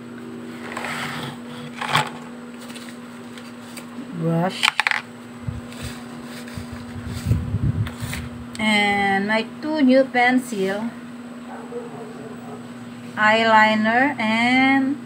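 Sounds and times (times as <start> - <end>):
steady low hum: 0.0 - 15.0
plastic items clicking and rattling: 4.6 - 5.1.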